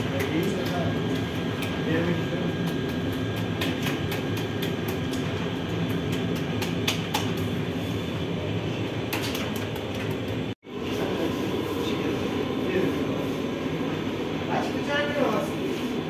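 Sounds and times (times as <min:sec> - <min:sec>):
hands slapping dough: 0:00.0 - 0:07.8, 0:09.1 - 0:10.6
bakery machinery drone: 0:00.0 - 0:16.0.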